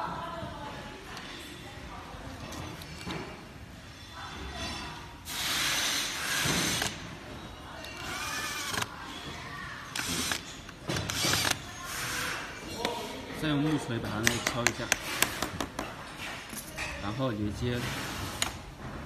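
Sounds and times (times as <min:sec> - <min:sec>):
cordless drill driving screws: 0:07.9 - 0:08.9, 0:09.9 - 0:11.6.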